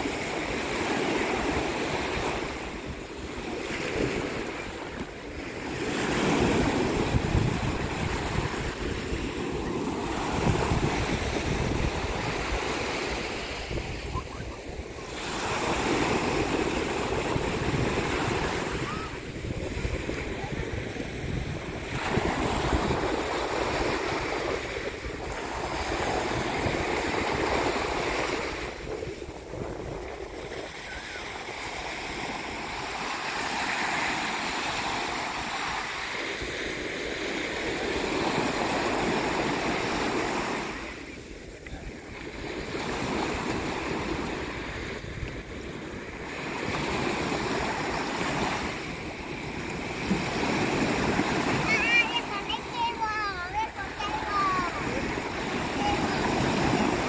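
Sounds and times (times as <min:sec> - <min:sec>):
wind buffeting microphone: 0:00.0 - 0:33.1
waves washing over sand: 0:00.0 - 0:57.0.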